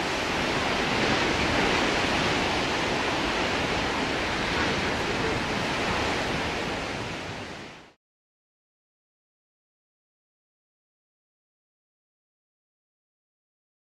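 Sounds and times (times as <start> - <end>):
ocean waves breaking: 0.0 - 8.0.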